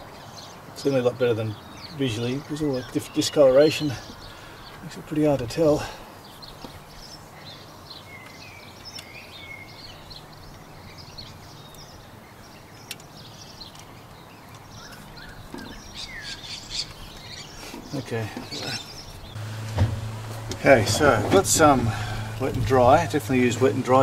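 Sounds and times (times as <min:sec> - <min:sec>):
birds chirping: 0:00.0 - 0:24.0
low background ambience: 0:18.0 - 0:24.0.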